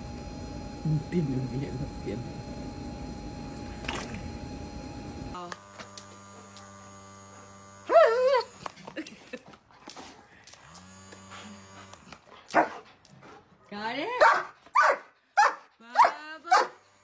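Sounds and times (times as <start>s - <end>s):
low electrical hum: 0.0s - 9.2s.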